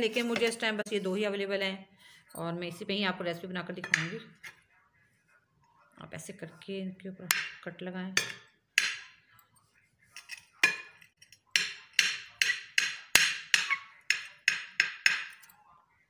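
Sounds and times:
knife chopping on a plate: 0:10.2 - 0:15.4.

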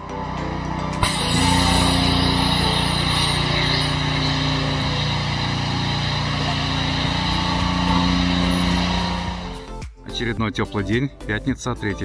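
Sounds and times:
pump humming: 0:00.0 - 0:09.7
water spray hissing: 0:01.0 - 0:09.6.

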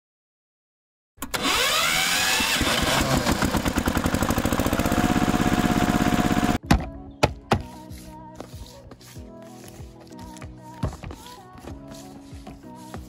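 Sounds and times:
engine starting and chugging: 0:01.2 - 0:06.6.

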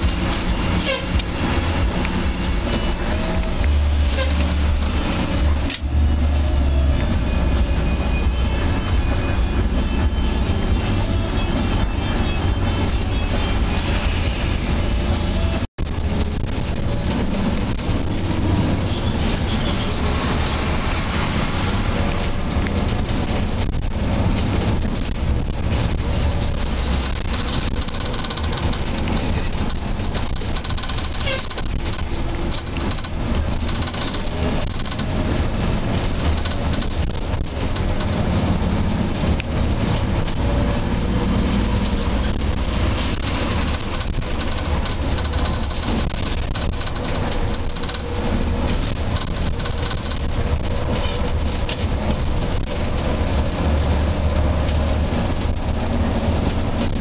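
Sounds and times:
bus engine drone: 0:00.0 - 0:57.0
rattling inside bus: 0:00.0 - 0:57.0
road noise: 0:00.0 - 0:57.0
rattle: 0:25.7 - 0:38.3, 0:41.8 - 0:54.0.

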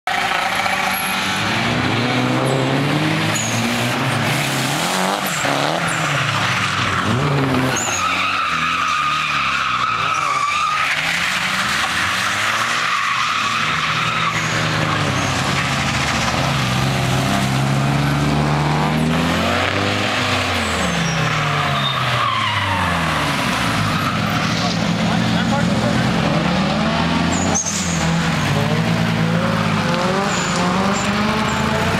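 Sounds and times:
car engines revving: 0:00.0 - 0:31.9
tyre squeal: 0:03.3 - 0:16.3, 0:20.6 - 0:23.2, 0:27.2 - 0:28.6.

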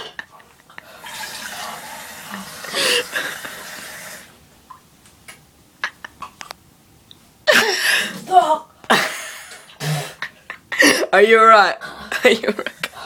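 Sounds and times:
person wheezing and gasping: 0:02.7 - 0:03.4, 0:07.5 - 0:08.3.

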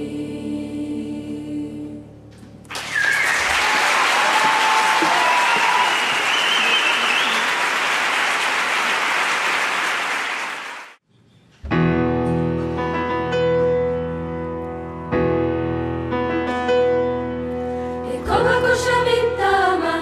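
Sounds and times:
choir singing: 0:00.0 - 0:02.3, 0:18.0 - 0:20.0
audience applauding: 0:02.7 - 0:11.0
piano playing: 0:11.6 - 0:20.0.

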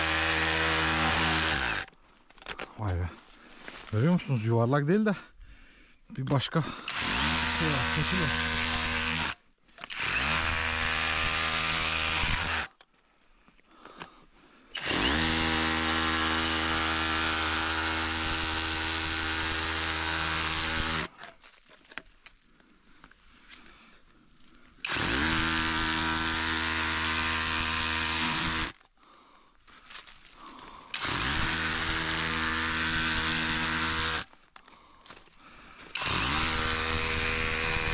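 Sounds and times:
electric power tool running: 0:00.0 - 0:01.9, 0:06.9 - 0:12.8, 0:14.8 - 0:21.2, 0:24.8 - 0:28.8, 0:30.9 - 0:34.4, 0:35.9 - 0:37.9.

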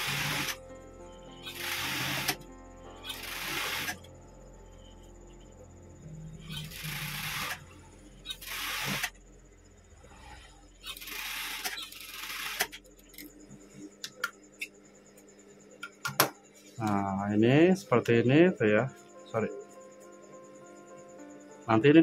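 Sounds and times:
sewing machine stitching: 0:00.0 - 0:00.6, 0:06.5 - 0:07.6, 0:08.3 - 0:09.1, 0:10.8 - 0:12.8
motor hum: 0:00.0 - 0:16.0.

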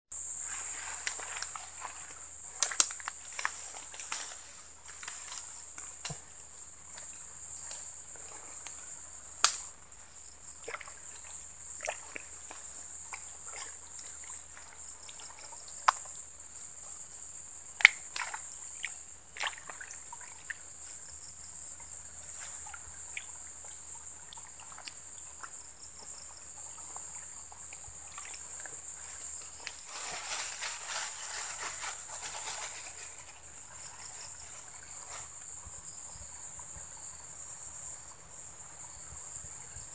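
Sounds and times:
high-pitched insect chorus: 0:00.1 - 0:39.9
hand clicking and rustling in mud: 0:02.6 - 0:04.3.

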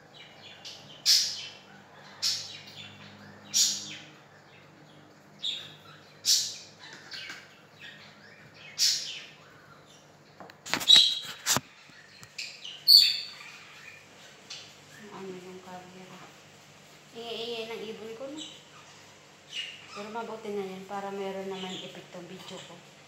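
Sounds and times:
pet bird chirping: 0:00.0 - 0:15.6, 0:17.4 - 0:22.9.

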